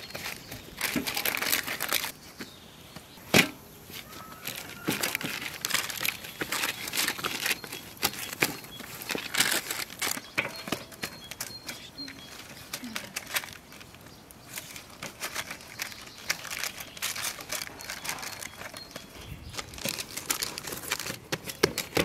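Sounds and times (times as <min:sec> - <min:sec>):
paper crinkling: 0:00.0 - 0:02.2, 0:03.9 - 0:22.0.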